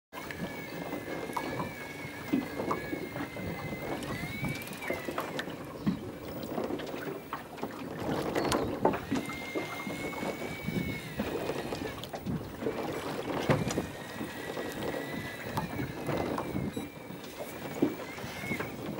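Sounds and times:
water lapping against boat hull: 0.1s - 18.9s
fishing reel whining: 0.2s - 7.3s, 8.2s - 18.9s
wind on microphone: 0.2s - 18.9s.

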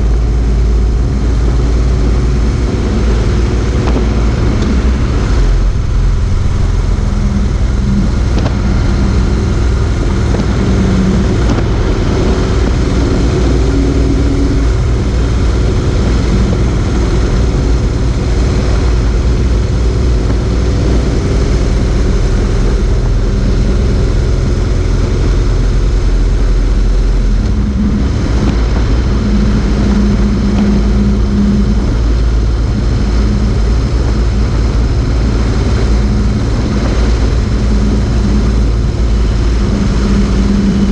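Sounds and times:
motorcycle engine cruising: 0.0s - 40.9s
road noise: 0.0s - 40.9s
wind rushing: 0.0s - 40.9s.

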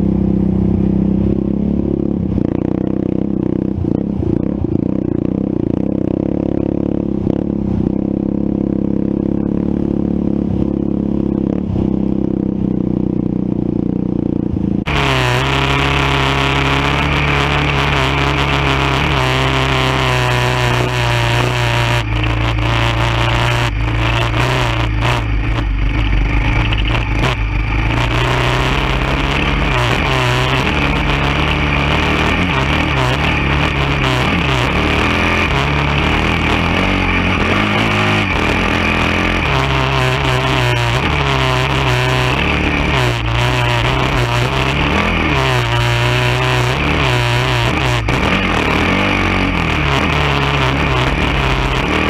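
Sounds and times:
quad engine running: 0.0s - 52.0s
clatter and rattle: 16.8s - 52.0s.

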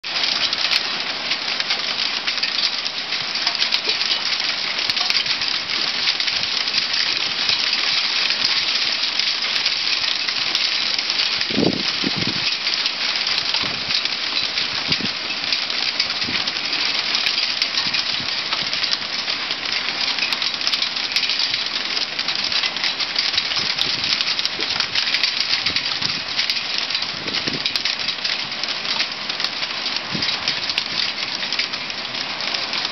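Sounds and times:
hail pattering on concrete: 0.0s - 32.9s.

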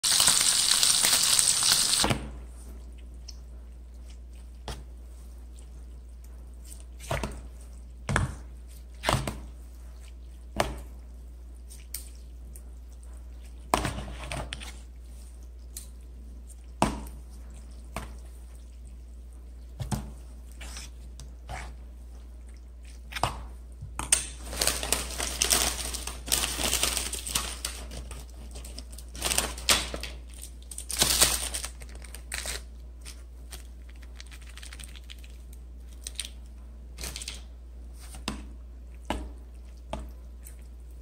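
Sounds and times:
food sizzling in frying oil: 0.0s - 2.1s.

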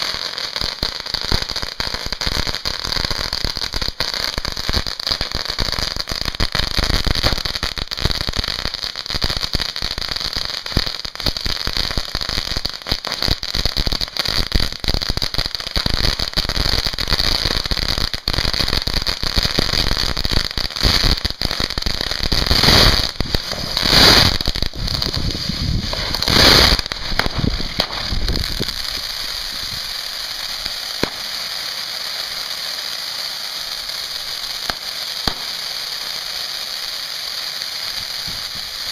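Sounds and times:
firework fountain hissing: 0.0s - 38.9s
fireworks crackling: 0.0s - 38.9s
loud firework bangs: 15.9s - 36.1s.

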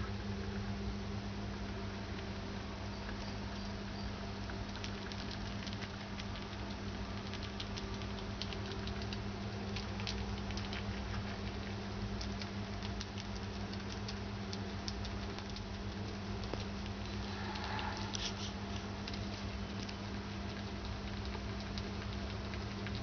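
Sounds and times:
rodent chewing and licking: 3.0s - 23.0s
low hum: 13.8s - 21.9s.

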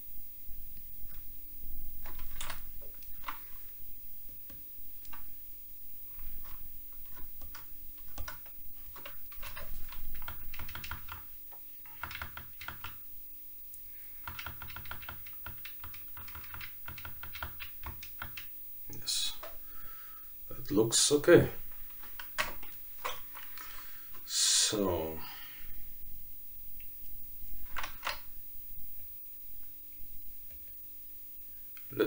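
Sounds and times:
computer keyboard keys clicking: 2.0s - 3.4s, 6.1s - 11.3s, 11.9s - 13.0s, 14.2s - 18.5s.

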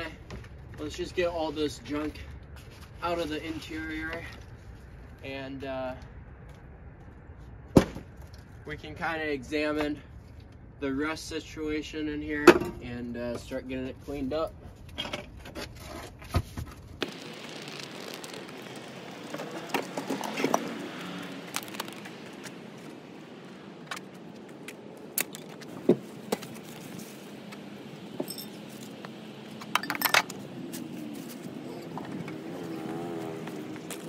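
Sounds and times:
steady background noise: 0.0s - 34.0s
metal parts clanking and rattling: 29.7s - 30.4s.

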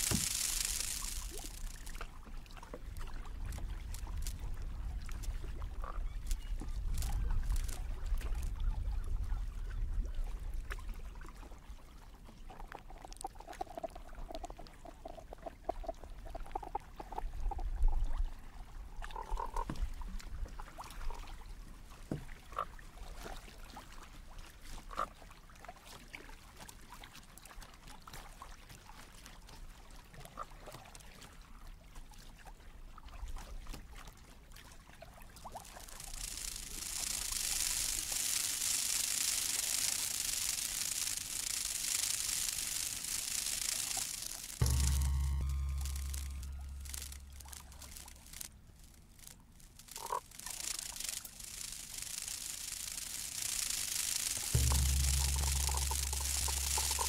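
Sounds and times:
synthesised pulsed notes and blips: 0.0s - 1.9s, 6.8s - 8.4s, 35.7s - 57.0s
low rumble: 44.6s - 50.0s, 54.4s - 57.0s.

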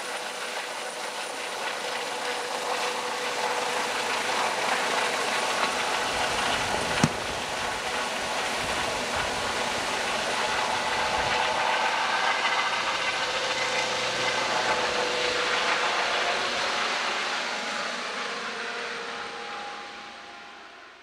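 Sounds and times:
helicopter flying overhead: 0.0s - 21.0s.

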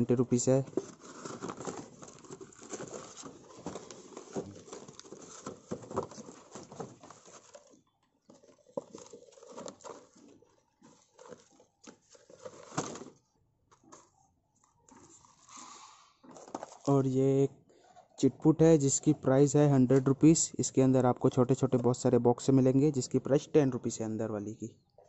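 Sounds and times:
paper and cardboard rustling: 0.0s - 17.1s.

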